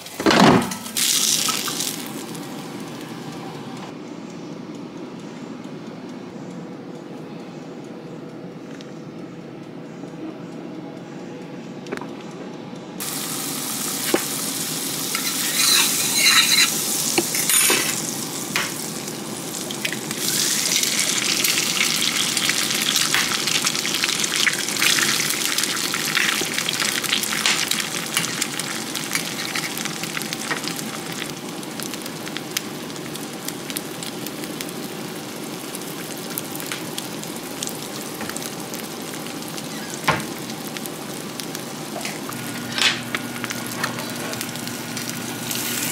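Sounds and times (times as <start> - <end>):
food sizzling in a pan: 0.0 - 3.2, 13.0 - 45.9.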